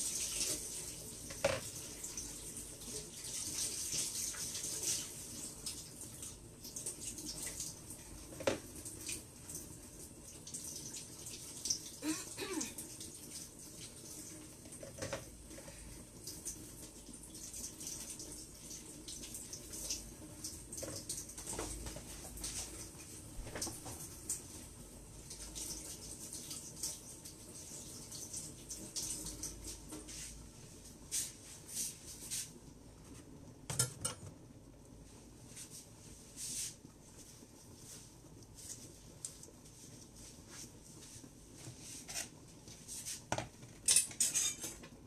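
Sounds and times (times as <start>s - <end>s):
water running into a sink: 0.0s - 24.6s
dishes and utensils clinking: 33.7s - 34.3s, 43.8s - 44.9s.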